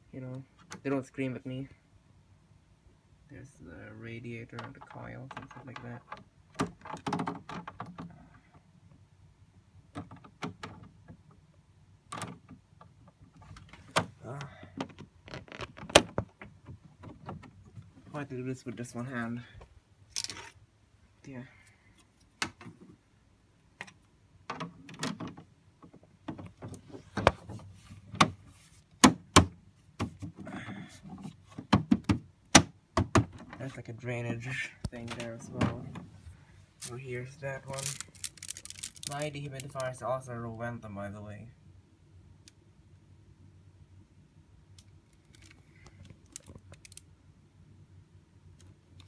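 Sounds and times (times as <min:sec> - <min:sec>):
handling clicks and knocks: 0:04.5 - 0:08.6, 0:09.9 - 0:11.4, 0:23.8 - 0:28.4, 0:37.7 - 0:39.8.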